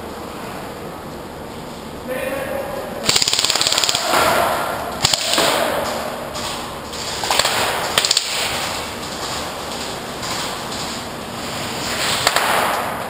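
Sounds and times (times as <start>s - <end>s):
airsoft guns firing: 3.0s - 8.9s, 12.2s - 13.0s.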